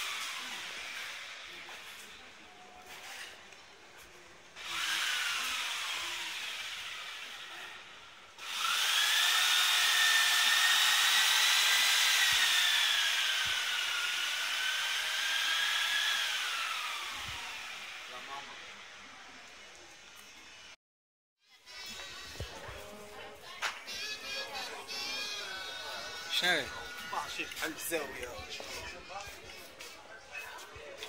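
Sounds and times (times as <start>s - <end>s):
power tool whining: 0.0s - 2.2s, 4.6s - 19.0s.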